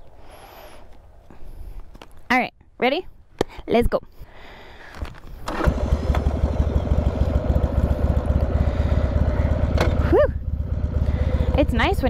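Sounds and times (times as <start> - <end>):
motorcycle engine starting and idling: 5.0 - 12.0.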